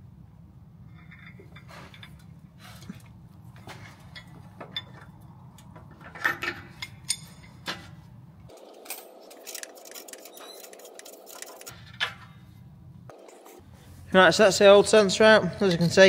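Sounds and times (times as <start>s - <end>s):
metal tool clinks and clicks: 8.5s - 11.8s.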